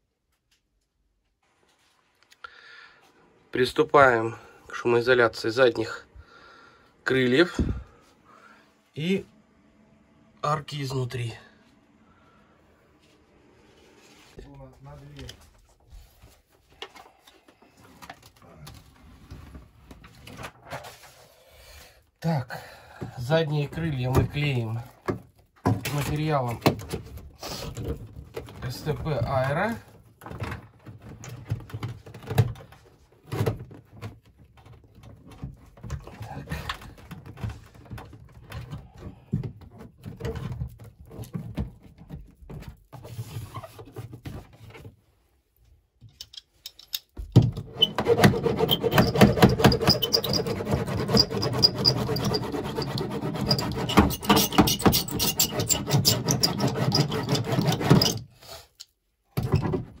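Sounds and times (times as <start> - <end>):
squeaky rubbing on metal panel: 43.0 - 44.4, 47.6 - 58.3
clicks and scrapes: 46.1 - 59.0.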